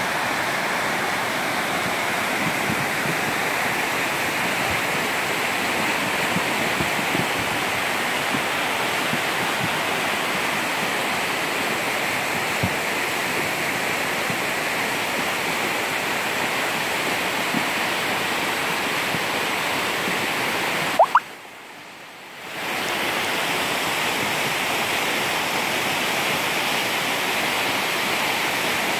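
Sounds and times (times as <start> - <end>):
stream rushing: 0.0 - 28.9
short rising chirp: 21.0 - 21.3.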